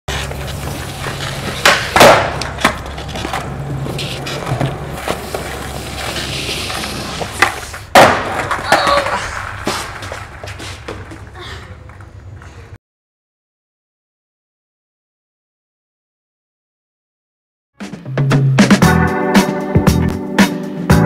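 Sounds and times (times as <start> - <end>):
skateboard slap: 0.1 - 11.3
skateboard wheels rolling on concrete: 0.1 - 12.8.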